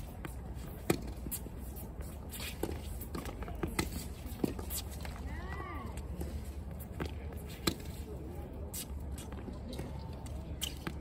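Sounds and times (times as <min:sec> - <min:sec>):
shoe scuffs on court: 0:00.0 - 0:05.2.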